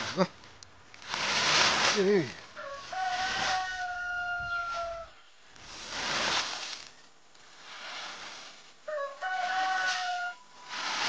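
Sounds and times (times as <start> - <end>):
rice pouring off bamboo mats: 1.0 - 11.0
rooster crowing: 2.6 - 5.2, 8.9 - 10.9.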